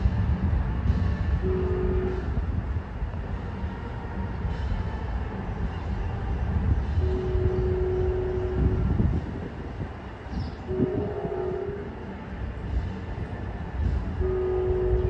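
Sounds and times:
train rumbling: 0.0 - 15.0
train horn: 1.3 - 2.5, 3.4 - 9.5, 10.6 - 12.3, 14.1 - 15.0.

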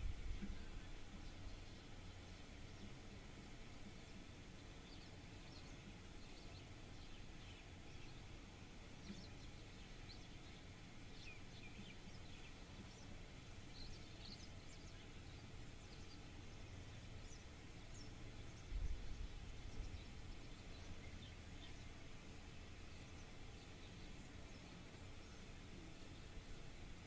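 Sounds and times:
low steady rumble: 0.0 - 27.0
small birds chirping: 0.4 - 27.0.

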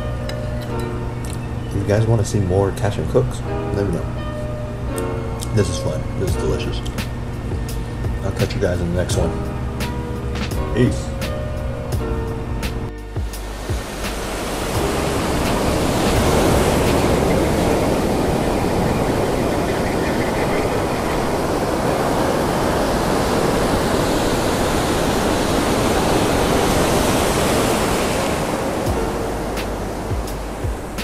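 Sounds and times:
ocean surf breaking: 13.2 - 31.0.

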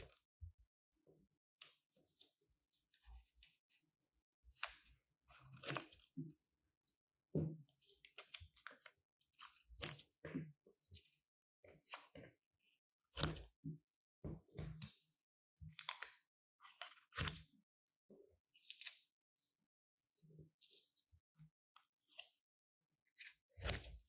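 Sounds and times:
scissors cutting paper: 23.5 - 24.0.

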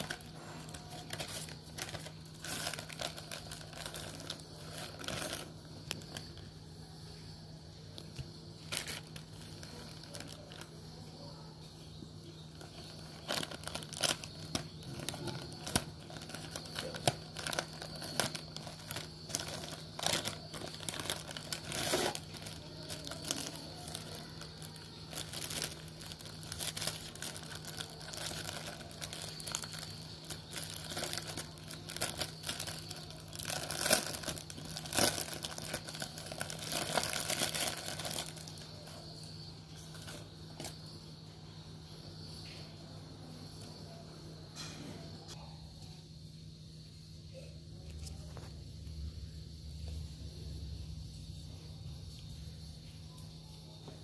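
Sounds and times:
plastic packaging crinkling: 0.0 - 6.6, 8.0 - 11.1, 12.3 - 40.8.

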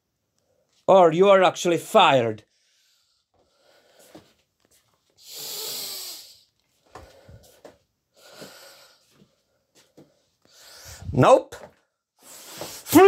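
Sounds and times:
soft breaths: 2.5 - 11.2
man breathing out loudly: 5.2 - 7.6, 10.5 - 11.2.

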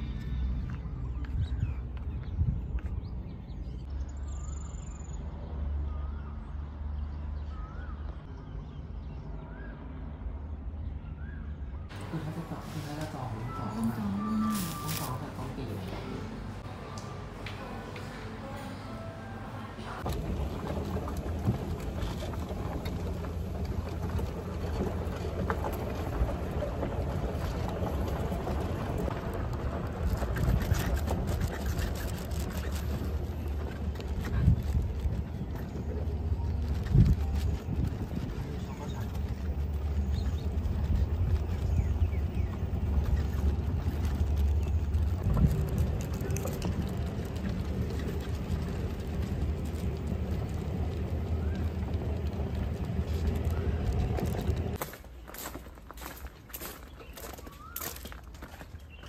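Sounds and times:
bird chirps: 0.0 - 9.9, 56.6 - 59.0
wind on microphone: 1.0 - 3.3, 20.0 - 54.8
wheels rumbling on gravel: 11.9 - 16.7, 19.9 - 59.0.

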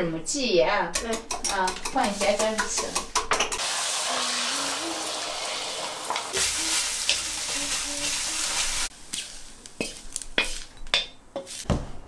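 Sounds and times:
egg sizzling in oil: 3.5 - 10.7.

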